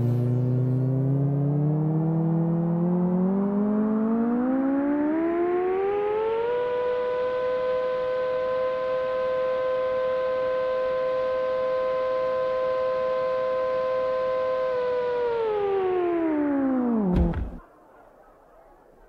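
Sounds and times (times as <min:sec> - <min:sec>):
synthesizer tone sliding down: 0:00.0 - 0:17.6.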